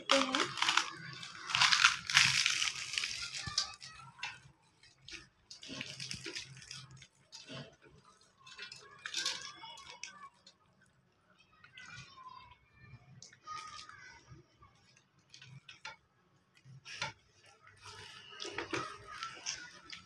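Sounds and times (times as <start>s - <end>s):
crisp fried bread tearing: 0.1s - 4.1s, 5.0s - 7.7s.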